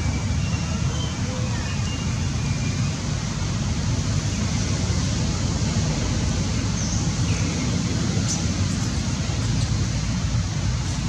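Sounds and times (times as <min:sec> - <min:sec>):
low rumbling noise: 0:09.3 - 0:11.0.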